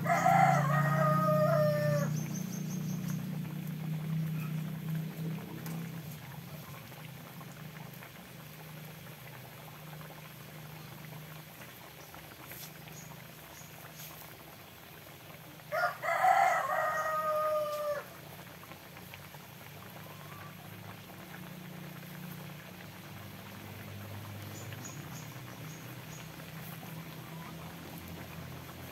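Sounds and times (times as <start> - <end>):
rooster crowing: 0.0 - 2.3, 15.7 - 18.2.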